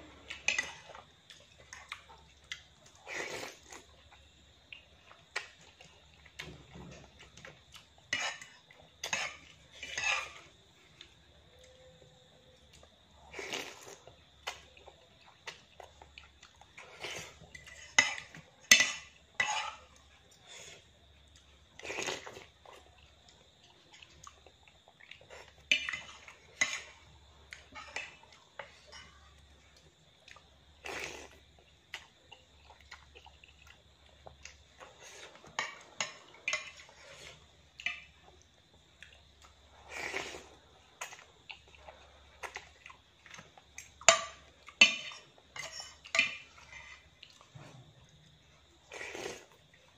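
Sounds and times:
noodles slurped: 48.8s - 49.6s.

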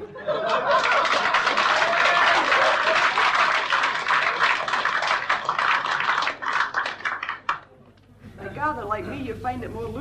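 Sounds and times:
audience laughter: 0.0s - 4.9s
audience applauding: 0.4s - 7.7s.

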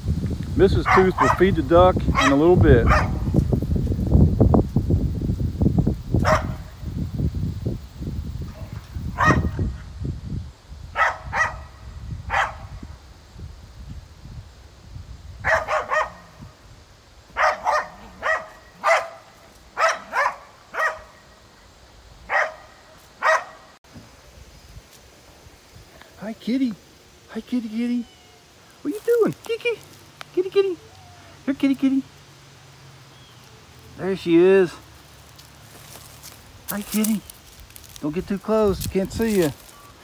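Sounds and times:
wind buffeting microphone: 0.0s - 18.8s
dog barking: 0.8s - 1.5s, 2.1s - 3.2s, 6.2s - 6.8s, 8.6s - 9.6s, 11.0s - 12.7s, 15.4s - 16.4s, 17.4s - 21.2s, 22.3s - 23.7s.

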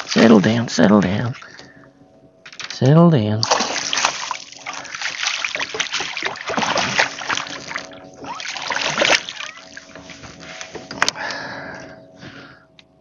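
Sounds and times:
fish thrashing water splashing: 3.4s - 10.0s.

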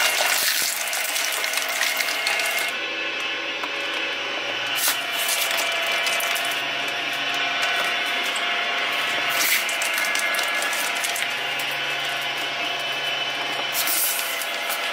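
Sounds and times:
shredder cutters clicking: 0.0s - 14.9s
shredder motor whine: 0.0s - 14.9s.

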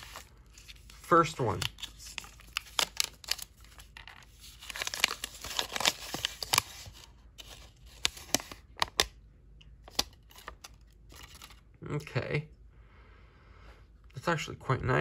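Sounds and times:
paper crinkling: 0.0s - 9.1s, 9.8s - 11.6s.

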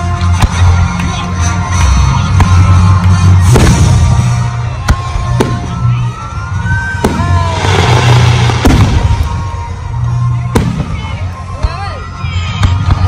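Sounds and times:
fireworks bangs: 2.3s - 11.4s.

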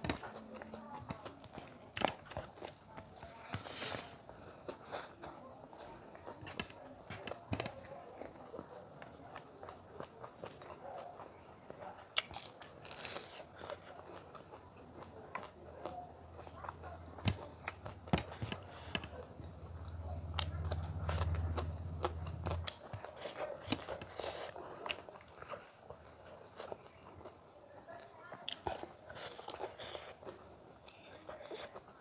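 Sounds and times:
chewing and crunching food: 0.0s - 32.0s
low steady hum: 14.7s - 22.9s.

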